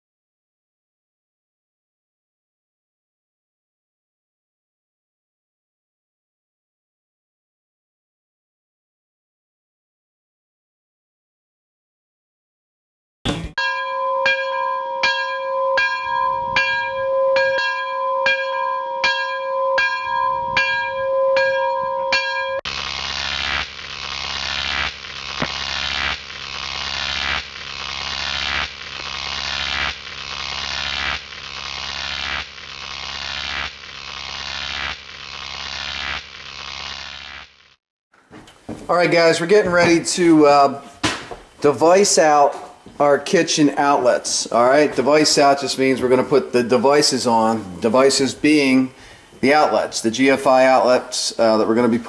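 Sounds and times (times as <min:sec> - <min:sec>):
electronic bell-like tone pulsing: 0:13.6 - 0:22.6
hissing electronic pulse: 0:22.6 - 0:37.8.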